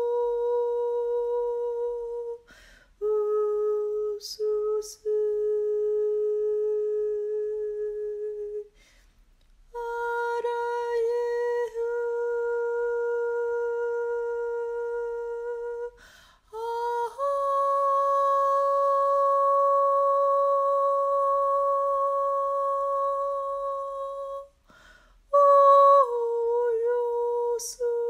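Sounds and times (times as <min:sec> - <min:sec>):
woman humming long notes: 0:03.0 - 0:08.7, 0:09.8 - 0:24.5.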